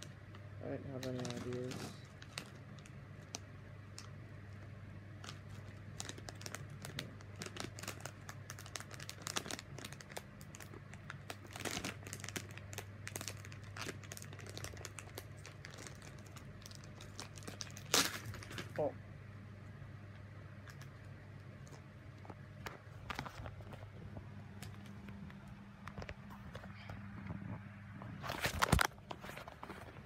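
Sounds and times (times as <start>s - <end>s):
plastic packet crinkling: 0.0s - 18.9s, 20.6s - 25.0s.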